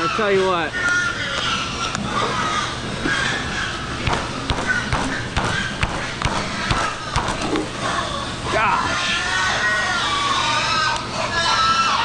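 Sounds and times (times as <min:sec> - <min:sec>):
steady background noise: 0:00.0 - 0:12.0
taps and thumps: 0:04.0 - 0:07.6.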